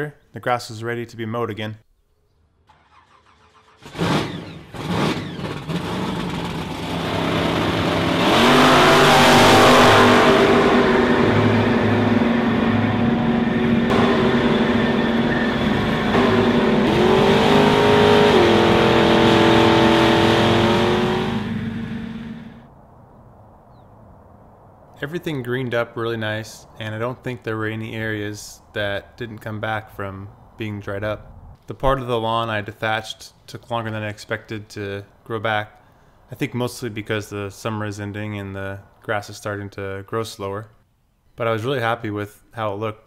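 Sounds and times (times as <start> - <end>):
lawn mower engine running: 2.7 - 22.6.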